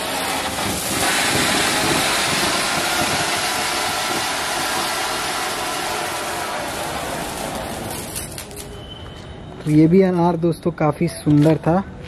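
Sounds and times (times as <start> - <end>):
fountain firework hissing sparks: 0.0 - 8.8.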